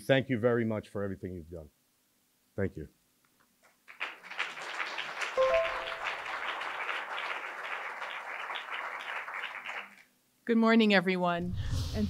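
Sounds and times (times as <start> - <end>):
audience applauding: 3.8 - 10.1
brief held tones: 5.4 - 6.0.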